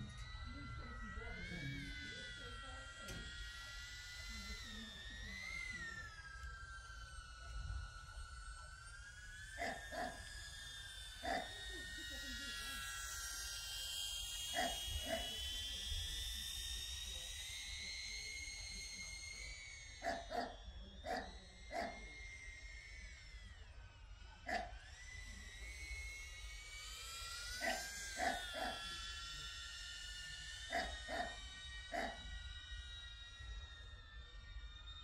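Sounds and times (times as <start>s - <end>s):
drone propellers whining: 0.0s - 35.0s
dog barking: 30.7s - 32.2s.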